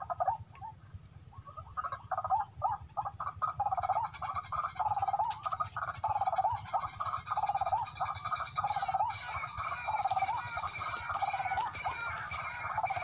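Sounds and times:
bird calling harsh wavering notes: 0:06.4 - 0:13.0.

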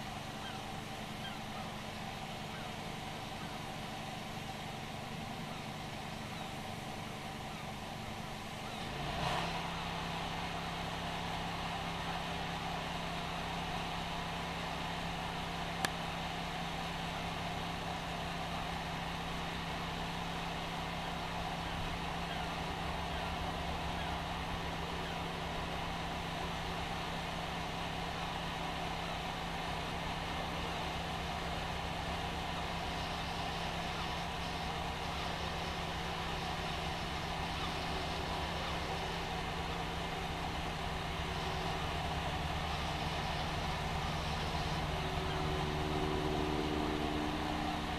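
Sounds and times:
engine running: 0:00.0 - 0:47.9.

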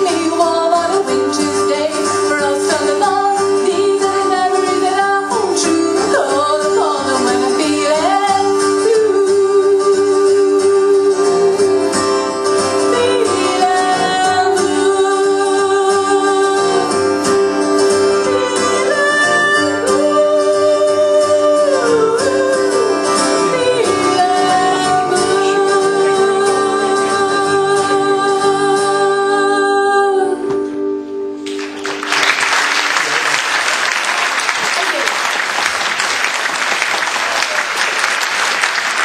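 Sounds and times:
person singing: 0:00.0 - 0:12.0, 0:12.7 - 0:17.0, 0:18.0 - 0:30.7
acoustic guitar: 0:00.0 - 0:39.0
audience applauding: 0:31.4 - 0:39.0.

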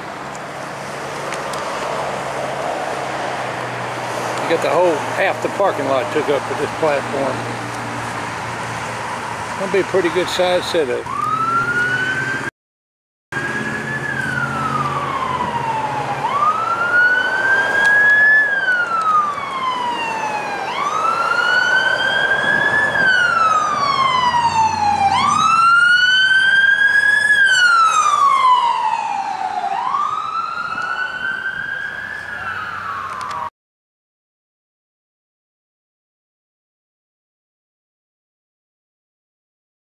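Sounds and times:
police siren wailing: 0:04.4 - 0:07.5, 0:09.0 - 0:12.5, 0:13.3 - 0:33.5.

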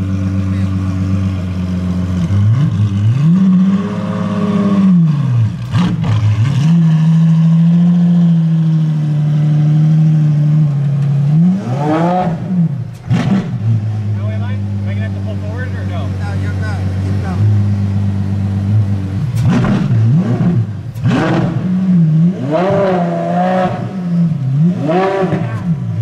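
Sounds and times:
car engine revving: 0:00.0 - 0:26.0
exhaust cracks: 0:12.2 - 0:17.7, 0:18.7 - 0:21.9.

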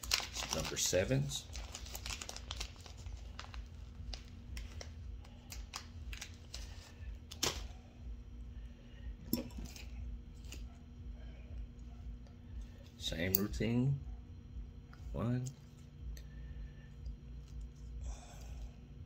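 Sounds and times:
plastic packet rustling: 0:00.0 - 0:07.7
steady low hum: 0:00.0 - 0:19.0.

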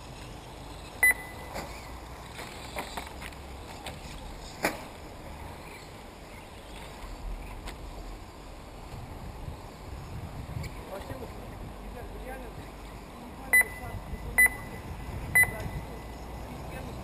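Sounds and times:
short electronic beep: 0:01.0 - 0:01.5, 0:13.5 - 0:14.8, 0:15.4 - 0:15.9.

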